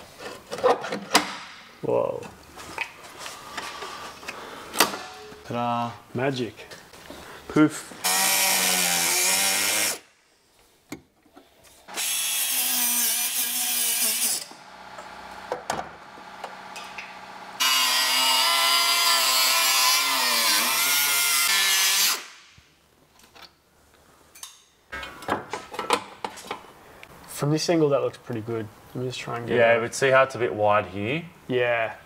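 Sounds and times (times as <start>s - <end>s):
die grinder cutting sheet steel: 8.0s - 10.0s, 11.9s - 14.6s, 17.6s - 22.3s.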